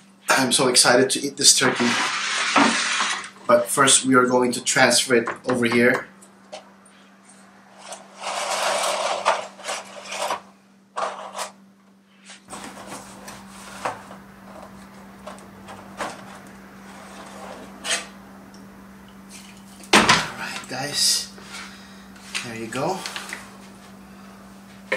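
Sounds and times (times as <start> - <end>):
foil pan crinkling and scraping: 12.3 - 14.0.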